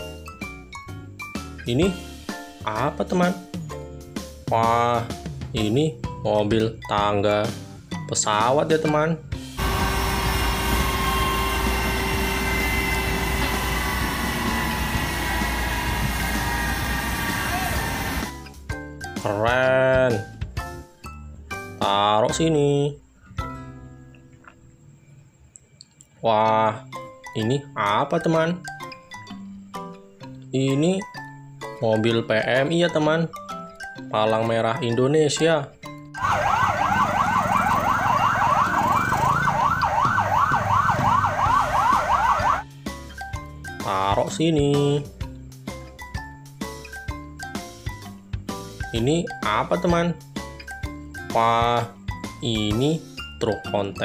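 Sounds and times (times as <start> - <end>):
ambulance siren yelping: 9.6 - 18.3, 36.2 - 42.7
jet engine whine: 9.6 - 18.3
low traffic rumble: 9.6 - 18.3.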